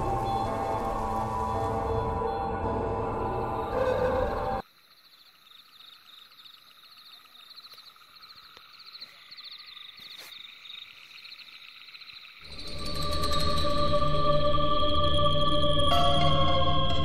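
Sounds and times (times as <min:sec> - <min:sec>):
music: 0:00.0 - 0:04.6, 0:12.5 - 0:17.0
crickets chirping: 0:00.0 - 0:17.0.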